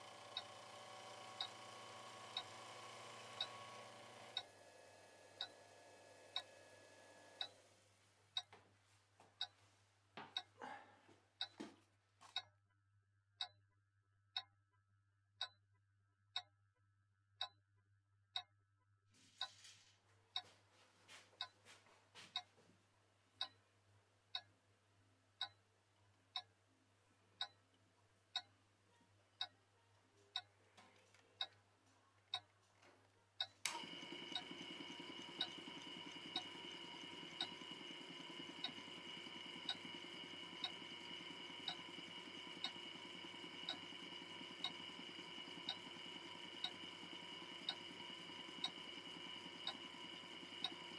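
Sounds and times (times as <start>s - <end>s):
clock ticking: 0.0s - 4.5s, 5.4s - 5.6s, 7.4s - 7.6s, 10.3s - 10.5s, 11.4s - 11.6s, 13.4s - 13.6s, 15.4s - 15.6s, 16.3s - 16.5s, 17.4s - 17.6s, 23.4s - 23.6s, 24.3s - 24.5s, 25.4s - 25.6s, 26.3s - 26.5s, 27.4s - 27.6s, 28.3s - 28.5s, 29.4s - 29.6s, 30.3s - 30.6s, 31.4s - 31.6s, 33.4s - 50.9s.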